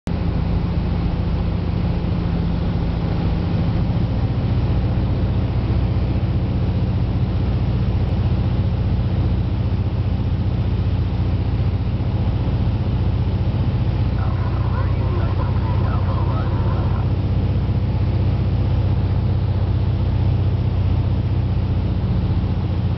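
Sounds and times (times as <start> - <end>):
aircraft engine and propeller: 0.1 - 22.9.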